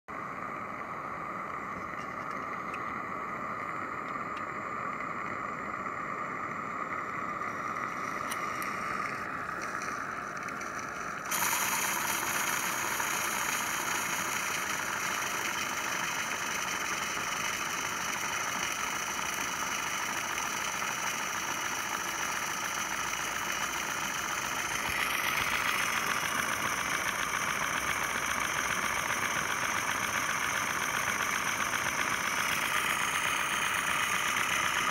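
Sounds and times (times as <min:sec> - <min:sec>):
steam hissing: 0:11.0 - 0:34.9.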